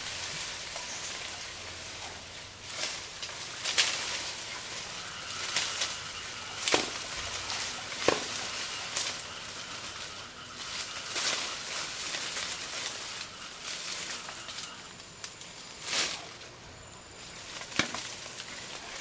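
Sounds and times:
leaves rustling: 0.0s - 19.0s
twigs snapping: 2.7s - 9.4s, 17.4s - 19.0s.

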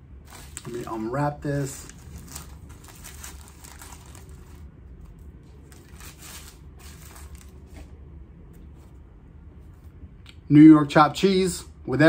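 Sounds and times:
paper wrapping rustling and crackling: 0.2s - 7.9s.

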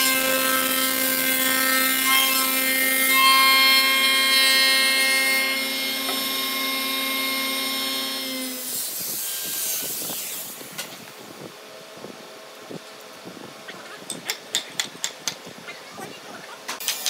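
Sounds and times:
wood shaper whining: 0.0s - 11.0s.

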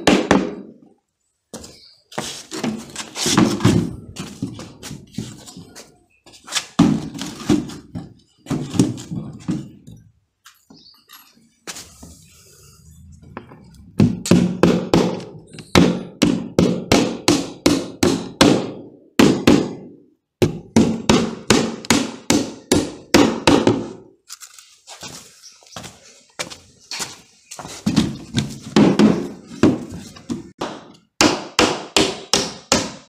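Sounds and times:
hammer driving nails into wood: 30.6s - 33.0s.

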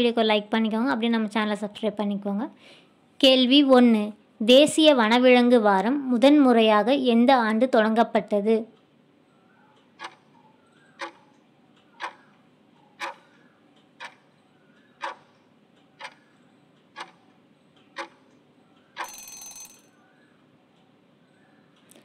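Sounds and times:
clock ticking: 8.2s - 22.0s.

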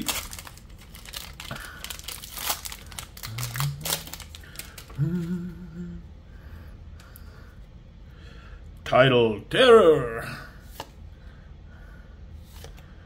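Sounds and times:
foil wrapper crinkling: 0.0s - 5.0s
person humming: 3.2s - 4.3s, 4.9s - 6.2s.

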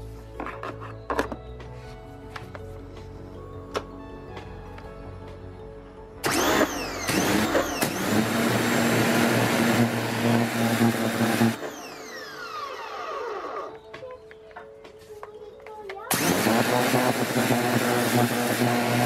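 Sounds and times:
pressure washer motor hum: 6.2s - 13.8s, 16.1s - 19.0s.

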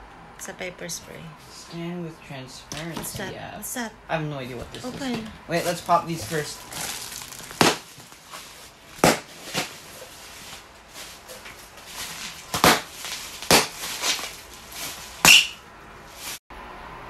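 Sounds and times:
air cushions popping: 4.6s - 16.4s
plastic crinkling: 4.8s - 15.5s.

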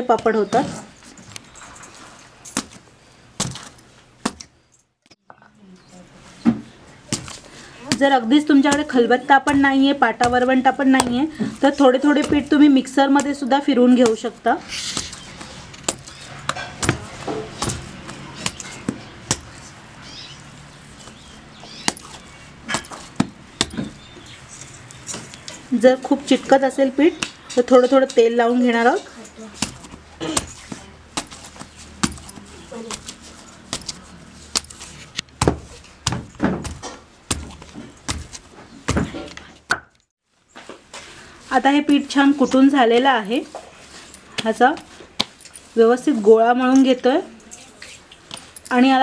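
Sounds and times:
stone pounding dough: 7.1s - 19.7s, 21.8s - 24.2s, 29.6s - 39.9s.

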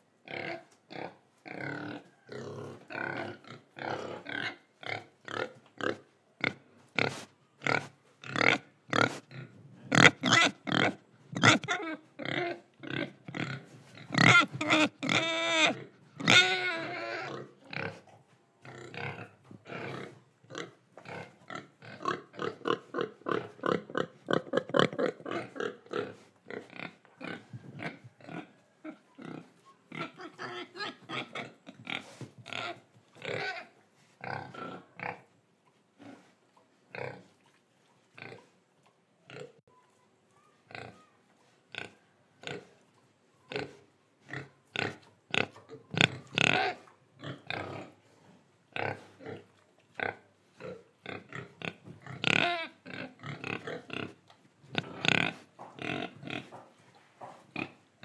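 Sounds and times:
pigs grunting: 0.3s - 35.3s, 43.5s - 48.1s, 48.7s - 57.8s
pig high-pitched call: 10.0s - 12.6s, 14.2s - 17.5s, 52.2s - 53.0s.

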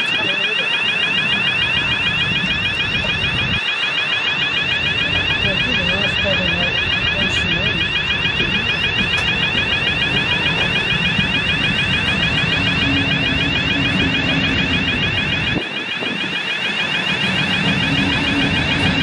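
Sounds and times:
continuous electronic alarm ringing: 0.0s - 19.0s
train wheels rumbling on track: 17.0s - 19.0s.

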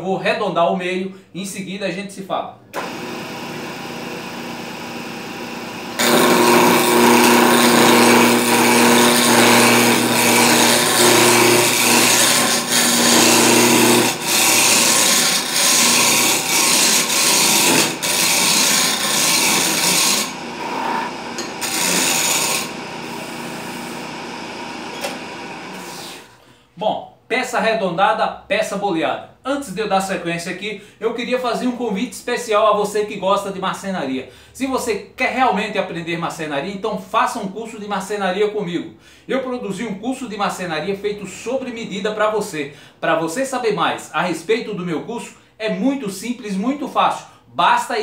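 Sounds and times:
lathe running: 2.8s - 26.4s
tool cutting spinning wood: 2.8s - 26.4s.

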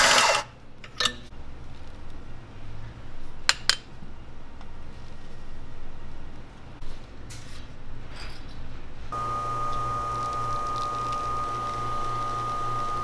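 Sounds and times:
espresso machine pump whine: 9.1s - 13.0s.

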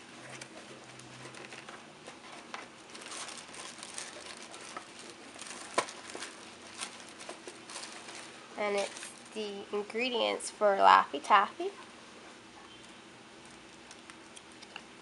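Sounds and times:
tissue paper crinkling: 0.3s - 9.5s.

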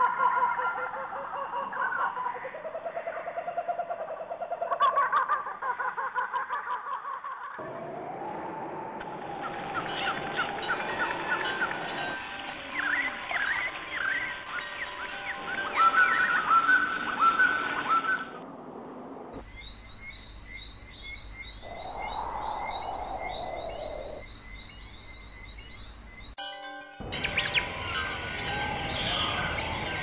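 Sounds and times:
birds chirping and calling: 9.4s - 18.4s, 19.4s - 26.4s, 27.1s - 30.0s.

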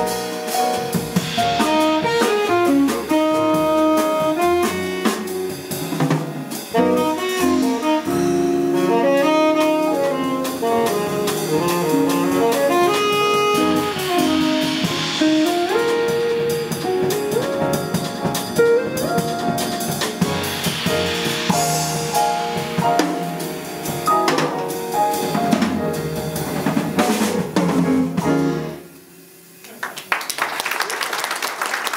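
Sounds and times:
double bass: 0.0s - 28.8s
drums and cymbals: 0.0s - 29.6s
piano: 0.0s - 31.9s
saxophone: 1.4s - 6.0s, 6.6s - 17.8s.

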